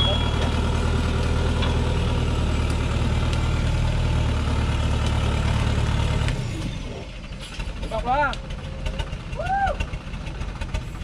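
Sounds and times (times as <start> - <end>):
truck engine running at low speed: 0.0 - 11.0.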